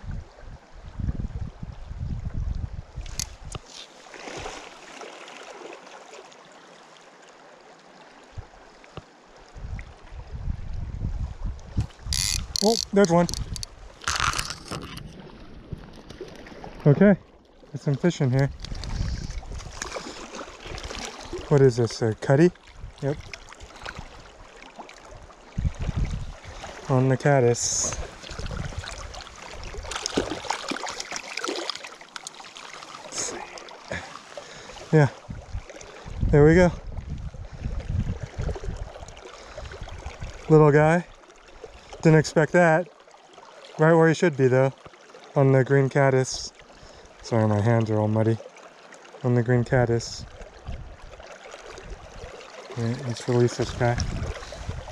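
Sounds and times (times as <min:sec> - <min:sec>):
creek water rushing: 0:03.1 - 0:09.6, 0:12.0 - 0:36.7, 0:38.3 - 0:49.4, 0:50.3 - 0:54.9
fish splashing at surface: 0:28.0 - 0:34.6.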